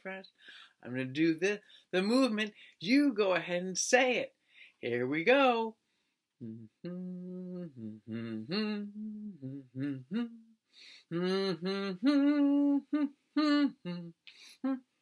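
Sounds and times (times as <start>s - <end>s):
man humming: 6.4s - 14.9s.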